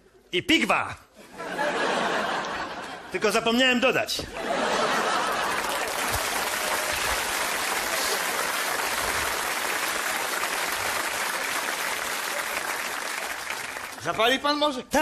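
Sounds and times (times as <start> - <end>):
audience applauding: 4.6 - 14.3.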